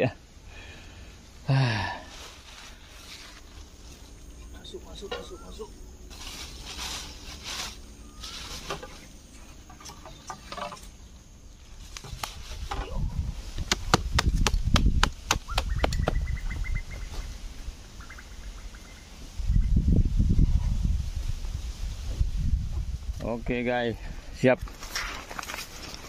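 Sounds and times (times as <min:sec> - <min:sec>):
plastic sheet rustling: 0:06.1 - 0:09.0.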